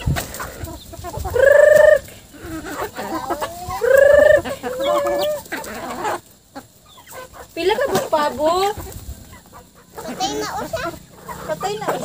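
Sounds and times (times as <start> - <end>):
chicken squawk: 0.0 - 12.0
chickens clucking: 0.0 - 12.0.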